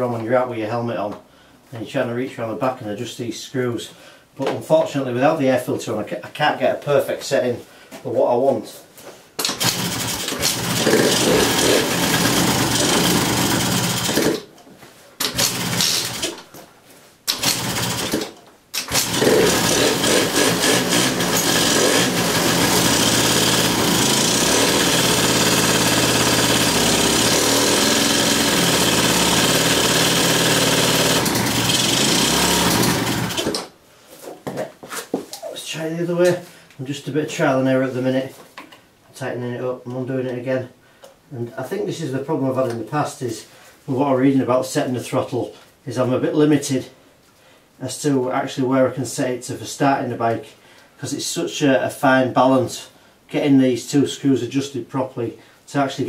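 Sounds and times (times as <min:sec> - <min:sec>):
scooter engine running: 0:09.5 - 0:14.4, 0:15.3 - 0:16.3, 0:17.4 - 0:18.2, 0:18.8 - 0:33.6.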